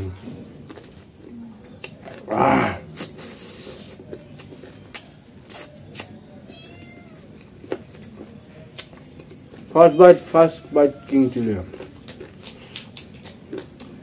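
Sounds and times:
chewing with lip-smacking: 0:00.6 - 0:06.5, 0:07.3 - 0:09.8, 0:11.6 - 0:14.0.

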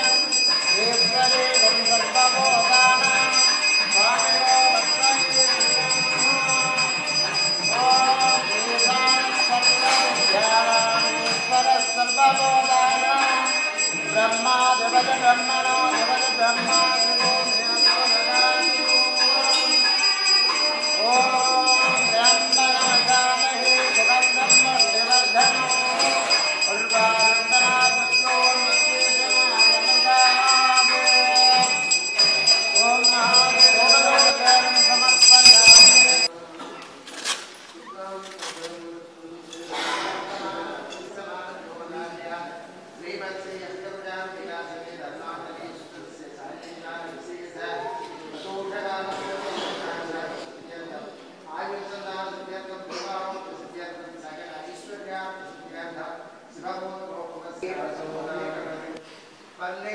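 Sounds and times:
brass bell ringing: 0:00.0 - 0:36.3.

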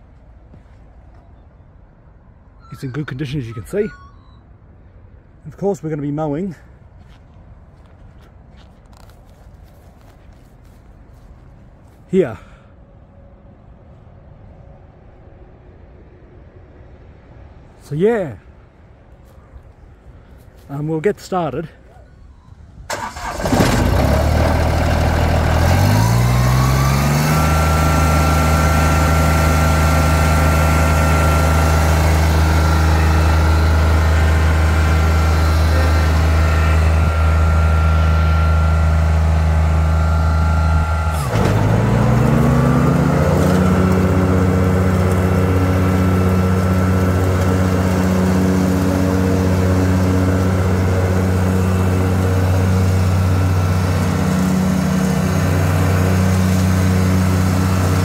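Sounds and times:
mower diesel engine revving: 0:22.9 - 0:58.0.

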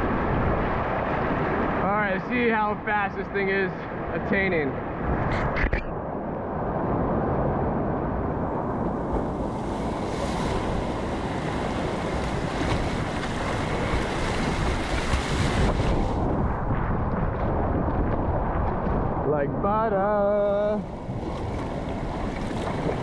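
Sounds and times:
rushing whitewater: 0:00.0 - 0:05.2, 0:08.5 - 0:16.5, 0:20.4 - 0:23.0
wind buffeting microphone: 0:00.0 - 0:23.0
paddle strokes splashing: 0:09.1 - 0:16.4, 0:20.8 - 0:23.0.

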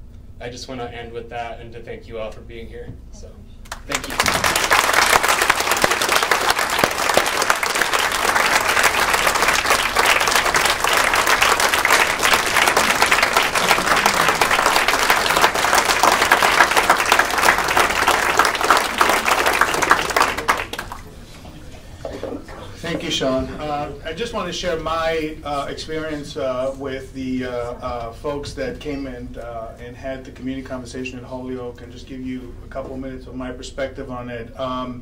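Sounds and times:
audience applauding: 0:03.7 - 0:23.4.

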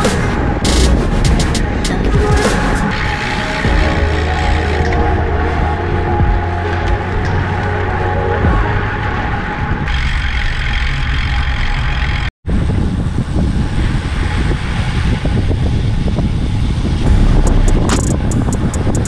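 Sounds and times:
traffic rumble: 0:00.0 - 0:19.0
sharp ticks: 0:17.1 - 0:19.0.

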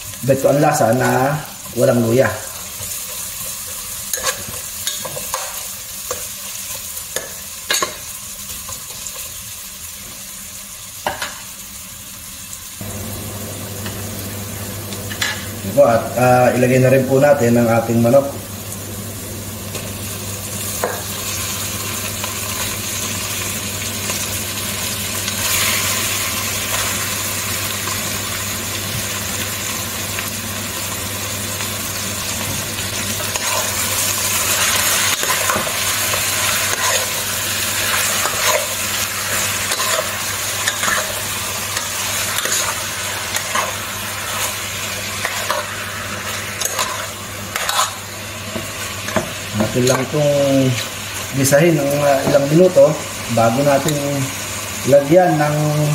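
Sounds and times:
chicken sizzling in hot oil: 0:00.0 - 0:55.9
spoon scraping against pot: 0:46.6 - 0:48.0.

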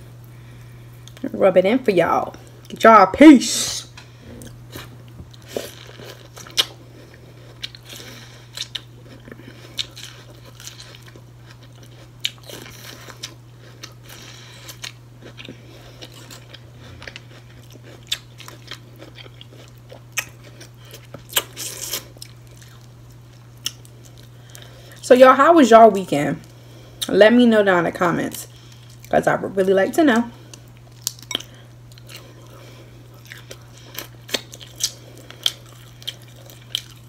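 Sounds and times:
chewing corn on the cob: 0:04.4 - 0:24.7, 0:30.5 - 0:37.0.

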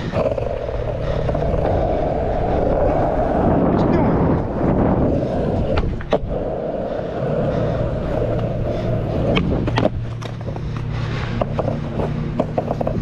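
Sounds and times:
skateboard clacks on pavement: 0:00.0 - 0:01.8, 0:07.2 - 0:13.0
skateboard wheels rolling on asphalt: 0:00.0 - 0:13.0.

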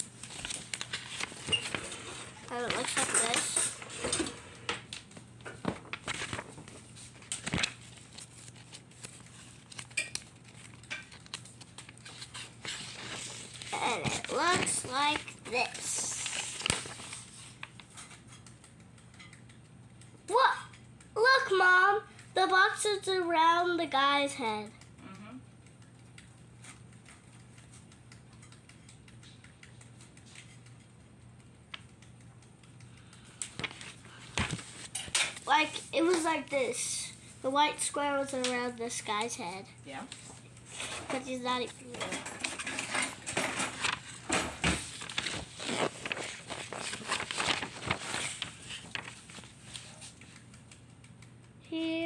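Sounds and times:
book pages flipping: 0:00.0 - 0:20.2, 0:25.7 - 0:31.1, 0:31.7 - 0:36.4, 0:40.1 - 0:51.5.

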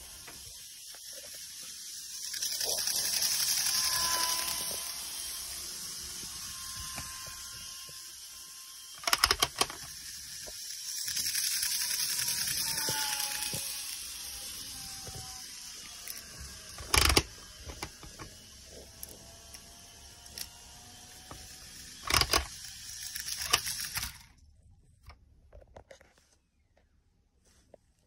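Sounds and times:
model train wheels hissing: 0:00.0 - 0:24.3
faint motor whine: 0:00.0 - 0:26.7.

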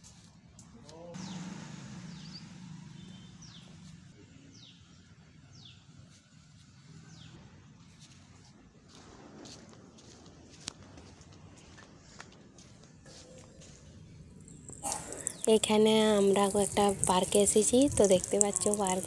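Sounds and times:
bird calling: 0:14.3 - 0:19.0.

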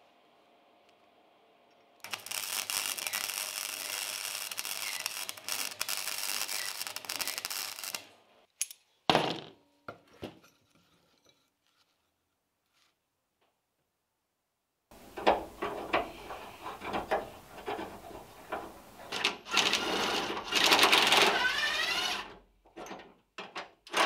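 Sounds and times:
power grinder grinding steel: 0:02.0 - 0:08.1, 0:15.0 - 0:22.3.

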